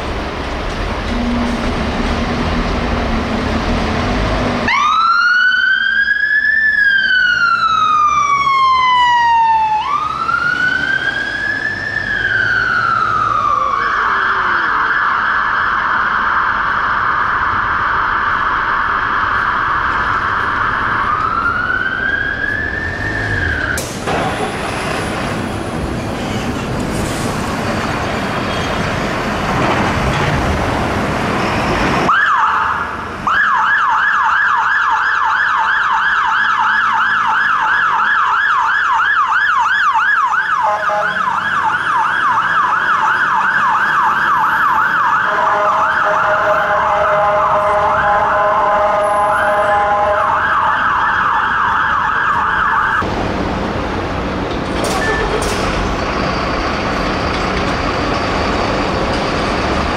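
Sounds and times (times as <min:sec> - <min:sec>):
heavy truck engine: 0:00.0 - 0:04.8, 0:09.5 - 0:13.8, 0:18.1 - 0:32.2, 0:40.6 - 0:59.9
fire engine siren yelping: 0:04.6 - 0:23.9, 0:32.0 - 0:53.1.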